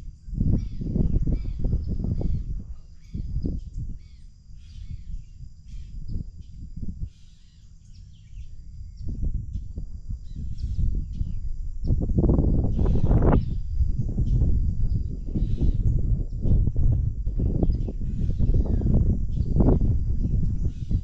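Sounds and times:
wind rumble on microphone: 0.0 - 21.0
birds calling: 0.6 - 9.2, 10.2 - 12.0, 12.6 - 13.6, 17.5 - 21.0.

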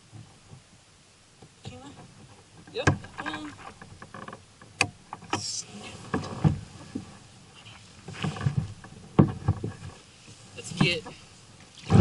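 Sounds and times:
gear knocking in a kayak: 1.4 - 12.0
brief rustle: 5.2 - 12.0.

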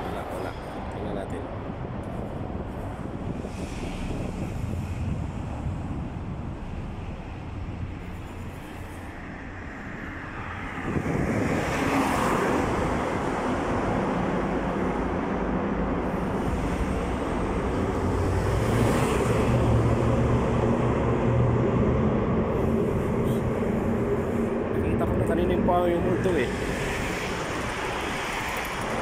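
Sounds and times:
rumble of passing cars: 0.0 - 29.0
car passing close: 9.3 - 29.0.

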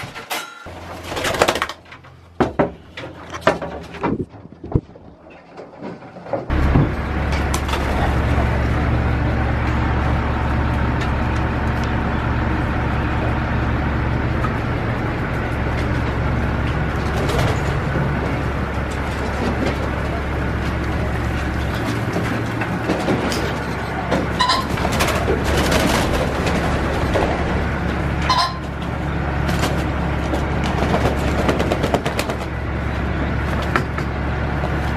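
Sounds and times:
low mechanical hum: 0.0 - 34.9.

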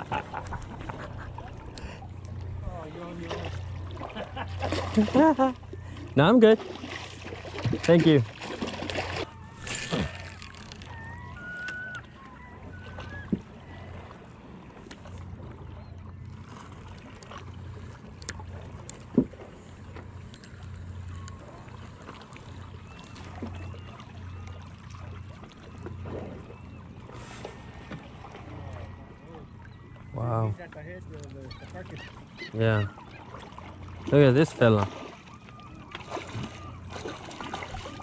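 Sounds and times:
low uneven rumble: 0.0 - 6.4.

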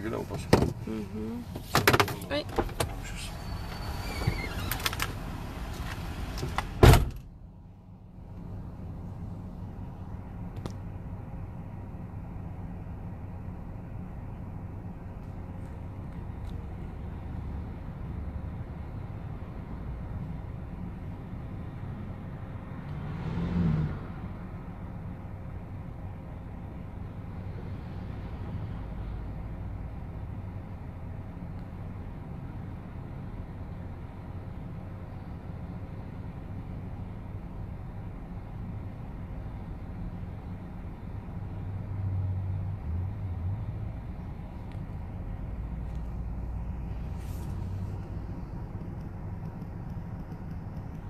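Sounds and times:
car cabin rumble: 0.0 - 12.3, 44.2 - 51.0
car engine and road noise: 0.0 - 51.0.

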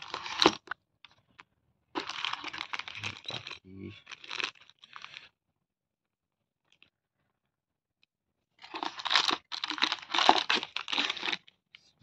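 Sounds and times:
plastic packaging crinkling: 0.0 - 0.7, 2.0 - 5.3, 8.6 - 11.5.

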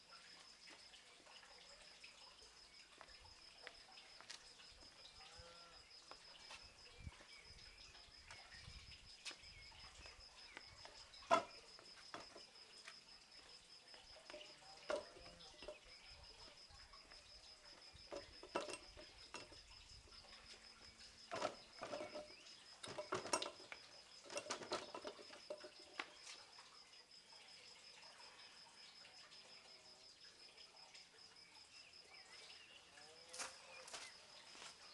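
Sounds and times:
hands knocking wooden posts: 11.3 - 11.5.

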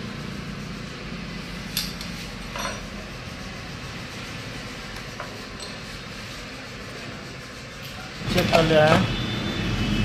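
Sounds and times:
spanner and bolts clinking: 1.7 - 3.0.

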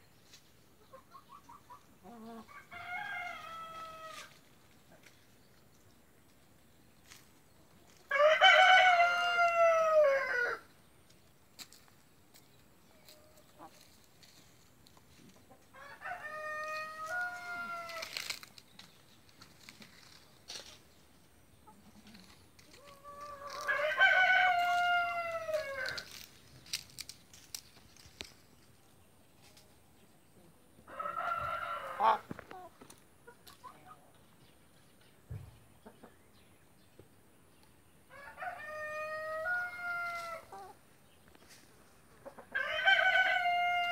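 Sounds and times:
rooster crowing: 8.1 - 10.6, 15.8 - 18.2, 23.3 - 26.1, 38.1 - 40.5, 42.6 - 43.9.

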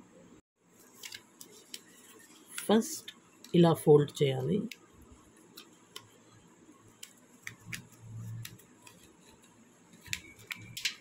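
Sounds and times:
paper being folded: 0.8 - 2.7, 6.9 - 11.0.

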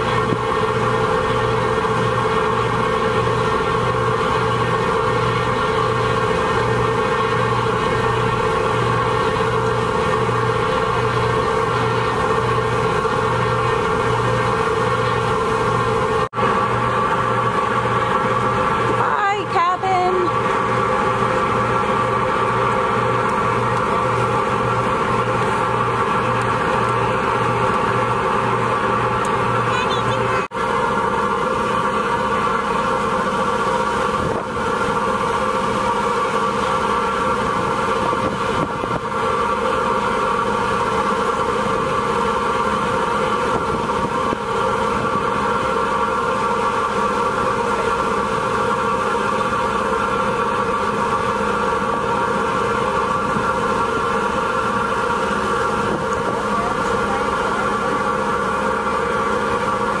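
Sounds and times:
boat engine droning: 0.0 - 60.0.

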